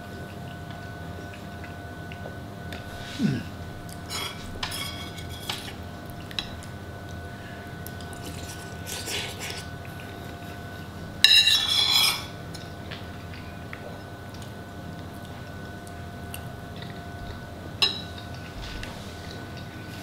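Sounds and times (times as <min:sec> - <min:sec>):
metal spoon scraping a bowl: 0:04.1 - 0:05.8, 0:08.2 - 0:09.7, 0:11.3 - 0:12.4.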